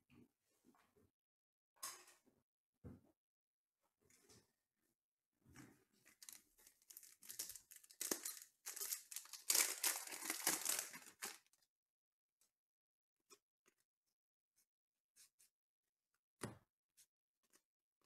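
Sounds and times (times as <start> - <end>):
foil wrapper tearing and crinkling: 6.2 - 11.4.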